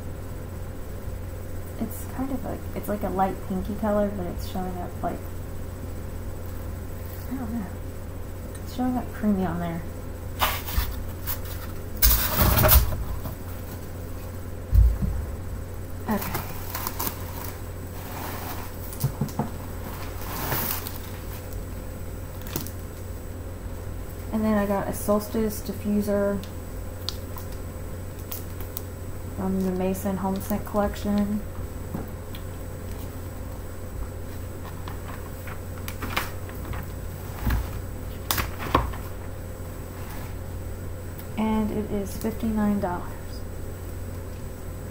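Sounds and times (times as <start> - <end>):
low hum: 0.0 - 38.3
low thump: 14.7 - 15.4
packaging rustling: 16.1 - 19.0, 19.8 - 21.6
paper and cardboard rustling: 16.1 - 21.5, 34.3 - 39.3.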